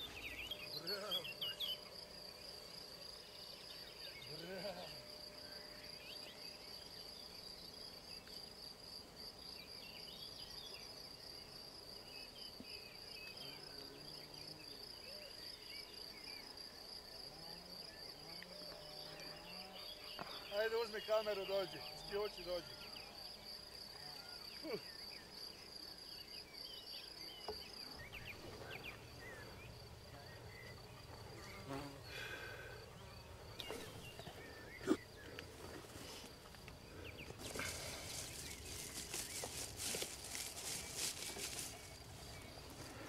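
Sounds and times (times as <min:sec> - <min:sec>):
insect trilling: 0:04.1 - 0:06.2, 0:27.8 - 0:43.0
stalks and grass rustling: 0:35.4 - 0:43.0.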